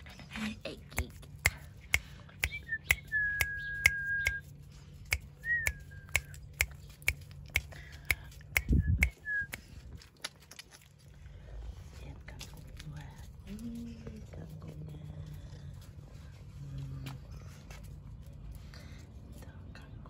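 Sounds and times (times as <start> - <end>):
tongue clicks or finger snaps: 0.9 - 10.4.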